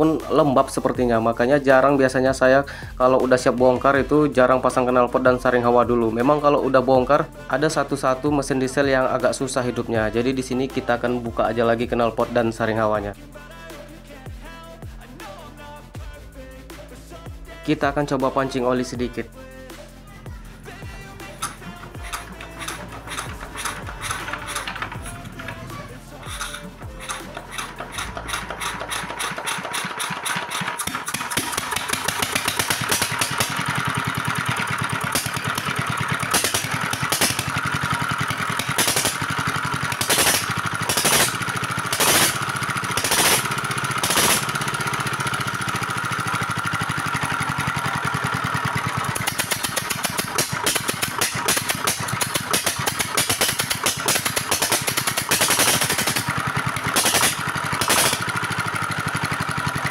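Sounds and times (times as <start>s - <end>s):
diesel engine chuffing: 20.4s - 59.9s
engine sharp bangs: 21.2s - 46.1s, 48.7s - 58.5s.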